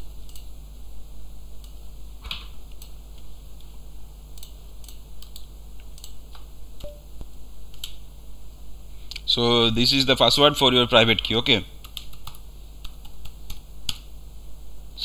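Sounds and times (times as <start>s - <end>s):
low steady hum: 0.0s - 15.0s
computer keyboard keys clicking: 0.2s - 0.5s, 4.3s - 7.0s, 11.8s - 14.0s.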